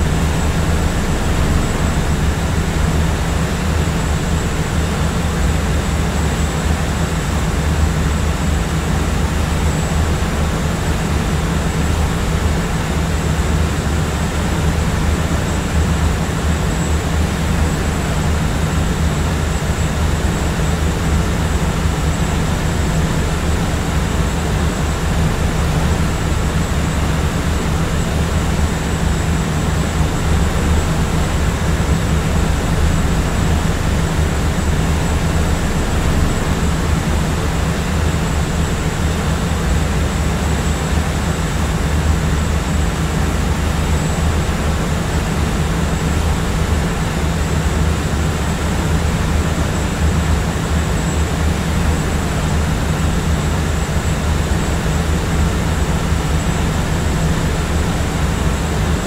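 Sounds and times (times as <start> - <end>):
jetliner cabin drone: 0.0 - 59.0.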